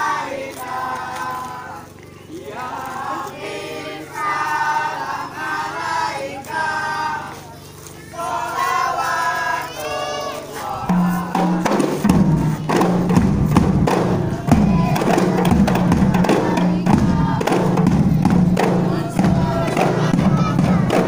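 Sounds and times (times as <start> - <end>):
crowd voices: 0.0 - 21.0
group of voices singing: 0.0 - 21.0
frame drums and bass drum beat: 10.7 - 21.0.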